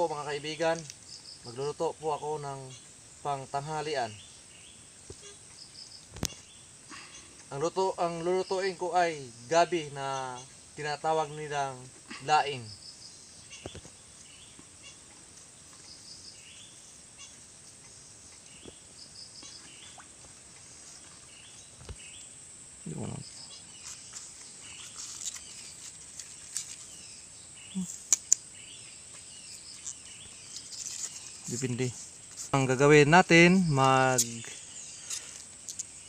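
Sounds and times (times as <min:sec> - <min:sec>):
birds chirping: 0:00.0 - 0:36.0
insect hiss: 0:00.0 - 0:36.0
sharp clicks: 0:28.1 - 0:28.4.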